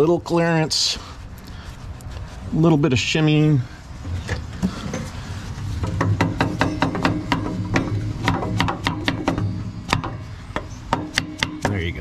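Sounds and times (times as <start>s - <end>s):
low hum: 3.8s - 12.0s
wrench knocking on steel: 5.8s - 11.9s.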